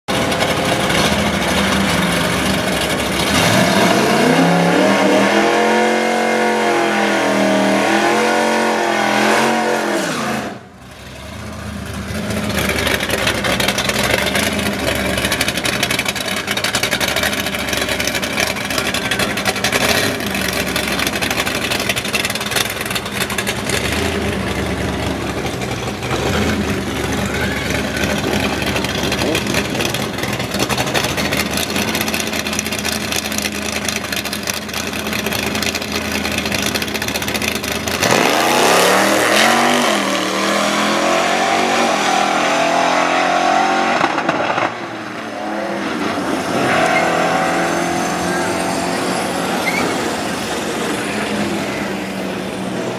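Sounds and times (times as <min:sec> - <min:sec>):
drag car engines idling: 0:00.1 - 0:04.2, 0:10.7 - 0:38.3, 0:48.1 - 0:52.9
car engine revving hard: 0:03.1 - 0:10.7, 0:37.8 - 0:51.8.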